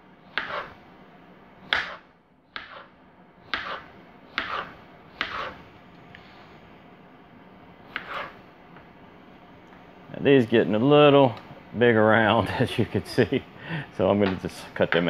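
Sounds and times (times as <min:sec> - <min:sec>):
knife chopping squash on cutting board: 0:00.3 - 0:00.8, 0:01.7 - 0:02.0, 0:02.6 - 0:02.9, 0:03.5 - 0:05.6, 0:07.9 - 0:08.4.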